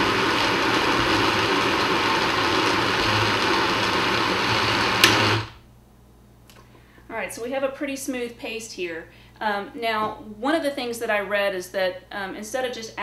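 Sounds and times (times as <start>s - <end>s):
blender motor running: 0.0s - 5.6s.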